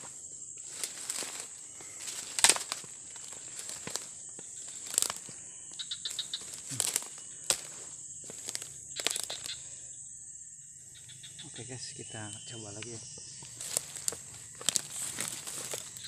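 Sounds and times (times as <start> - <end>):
footsteps through dry leaves: 0.0 - 9.6, 13.6 - 16.0
high-pitched insect drone: 0.0 - 16.0.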